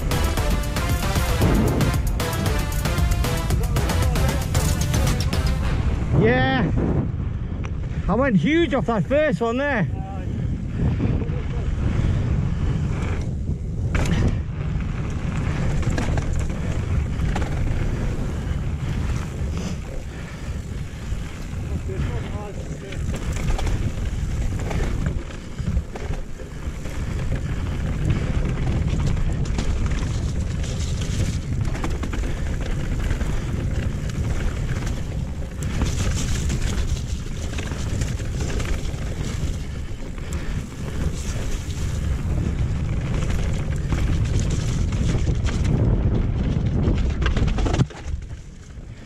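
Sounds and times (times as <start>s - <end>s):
wind buffeting microphone: 0.0s - 2.5s, 3.5s - 49.0s
bike tyres over dirt and stones: 0.0s - 49.0s
bike knocks and rattles: 13.1s - 49.0s.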